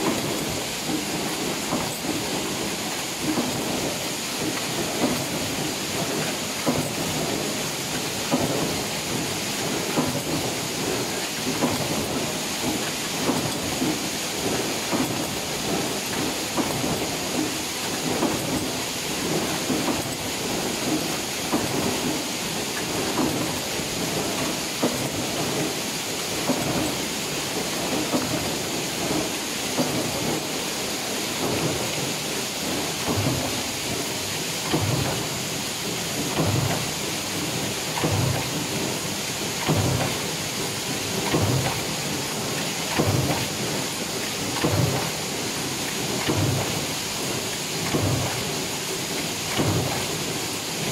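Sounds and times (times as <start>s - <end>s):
power press mechanical din: 39.6s - 42.0s.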